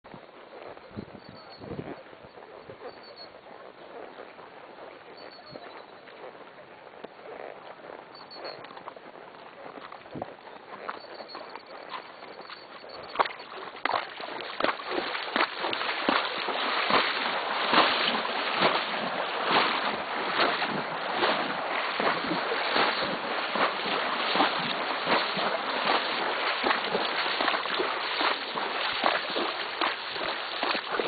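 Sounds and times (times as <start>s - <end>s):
horse splashing through water: 7.2s - 31.0s.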